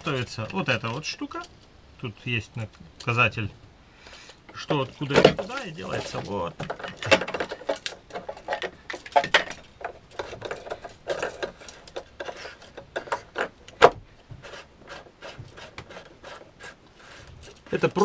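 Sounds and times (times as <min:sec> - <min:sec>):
plastic parts clicking: 0:04.3 - 0:14.0.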